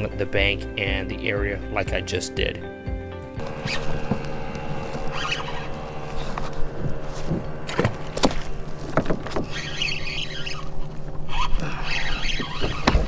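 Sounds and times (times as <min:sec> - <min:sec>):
steady low hum: 0:03.4 - 0:13.0.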